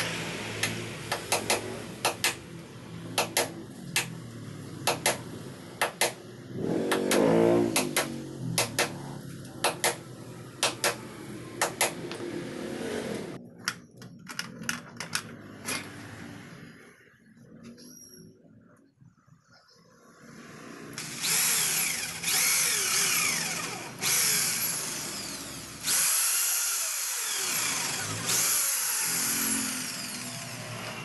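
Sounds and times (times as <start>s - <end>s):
hammer striking wooden frame: 3.2s - 4.1s, 4.9s - 6.2s, 6.9s - 9.0s, 9.6s - 12.1s.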